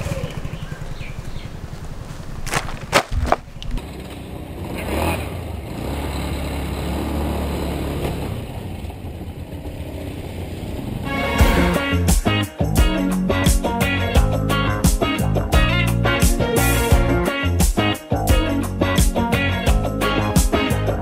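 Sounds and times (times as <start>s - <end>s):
motor scooter running: 0.0s - 11.7s
music with regular beat: 11.3s - 21.0s.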